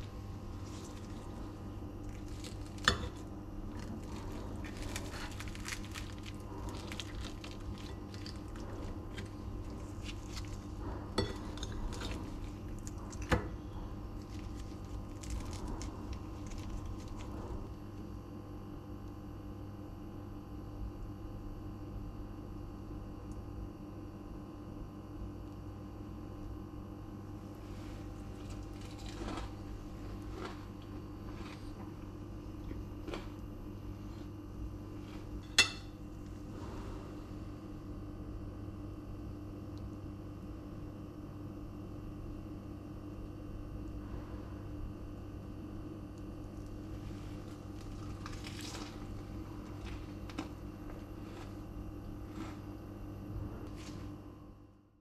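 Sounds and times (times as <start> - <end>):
low room hum: 0.0 - 55.0
spoon clinking on plate: 35.4 - 35.9
spoon scraping egg on plate: 35.4 - 36.0.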